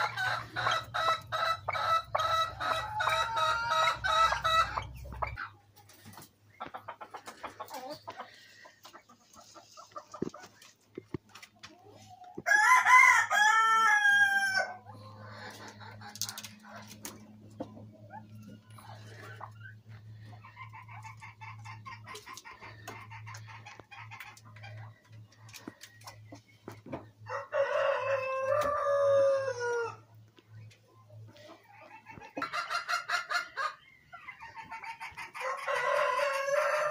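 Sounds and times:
soft clucking: 4.3s - 12.1s
rooster crowing: 12.5s - 14.8s, 27.3s - 30.0s, 35.4s - 36.9s.

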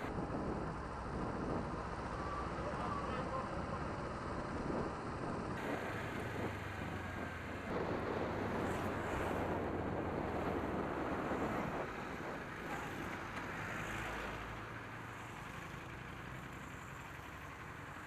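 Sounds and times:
wind rushing over microphone: 0.0s - 2.2s, 3.8s - 14.8s
motorcycle engine running: 2.9s - 18.0s.

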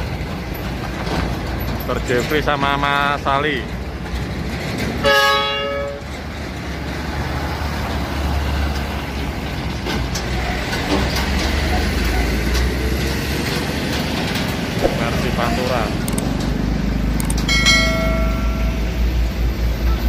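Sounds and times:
diesel trucks driving past: 0.0s - 20.0s
truck horn: 5.0s - 6.1s.

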